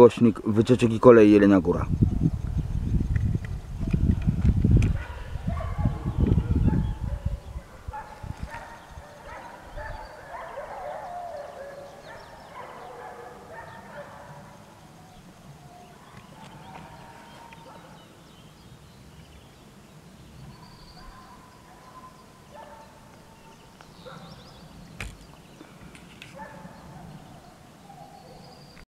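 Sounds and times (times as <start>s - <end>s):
birds chirping: 0.0s - 28.8s
distant animal cries: 15.6s - 18.0s.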